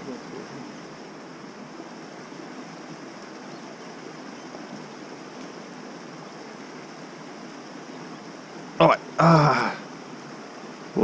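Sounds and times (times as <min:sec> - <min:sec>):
mountain creek rushing: 0:00.0 - 0:11.0.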